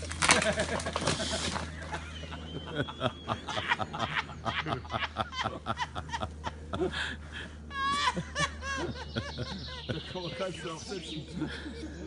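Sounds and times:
person snickering and laughing: 0.3 - 10.1, 11.2 - 12.0
bird chirping: 1.8 - 5.0, 8.6 - 12.0.

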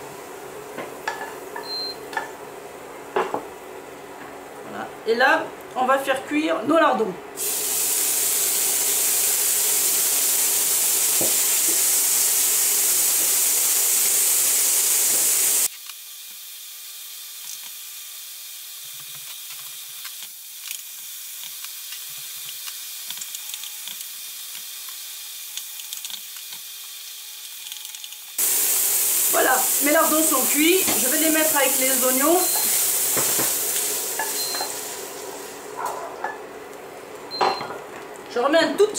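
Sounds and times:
meat sizzling in a frying pan: 7.4 - 27.7, 28.3 - 35.7.

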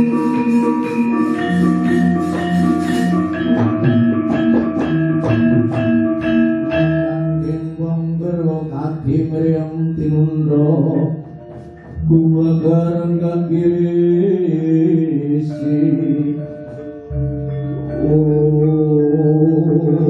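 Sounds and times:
gamelan ensemble playing: 0.0 - 20.0.

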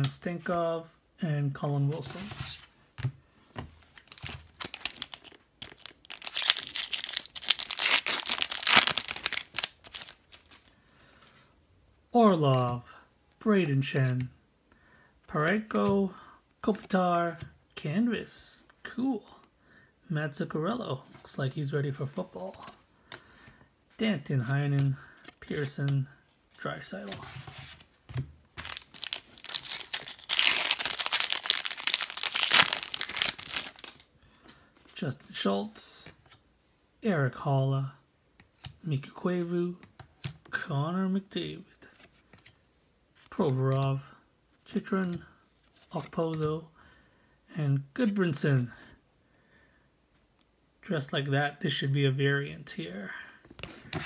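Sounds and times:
foil wrapper crinkling and tearing: 4.0 - 10.5, 28.6 - 34.1.

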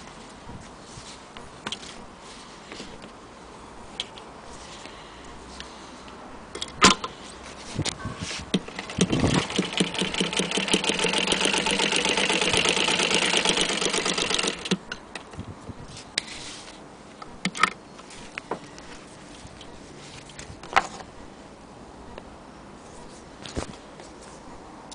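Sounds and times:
sewing machine clatter: 8.6 - 14.8.

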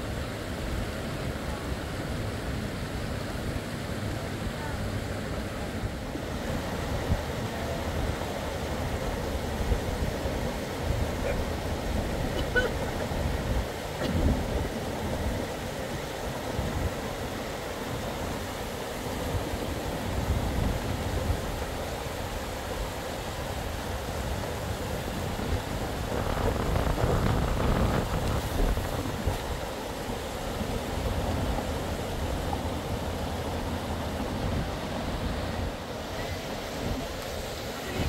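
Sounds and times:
rain hiss: 0.0 - 38.0
wind buffeting microphone: 6.4 - 17.2, 19.2 - 38.0.

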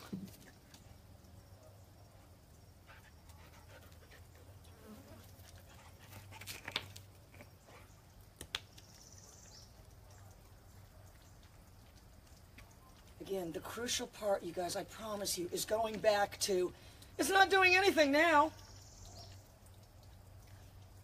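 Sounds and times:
dog panting: 2.1 - 6.6.

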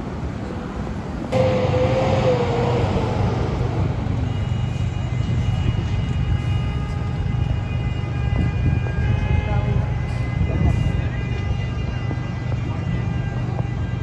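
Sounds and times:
vehicle engines rumbling: 0.0 - 14.0
wavering pitched tone: 1.4 - 5.9.

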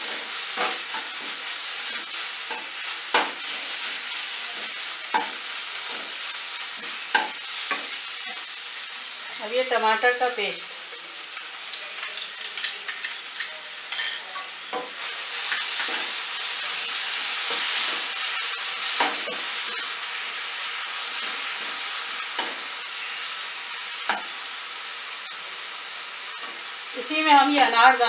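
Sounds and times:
paste sizzling in hot oil: 0.0 - 28.0
steel spoon clicking and tapping: 11.4 - 14.1.

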